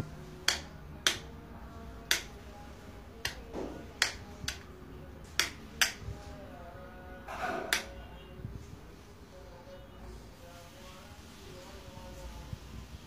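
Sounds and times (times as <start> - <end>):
sharp snaps: 0.4 - 1.3, 2.1 - 2.4, 4.0 - 4.7, 5.4 - 6.0.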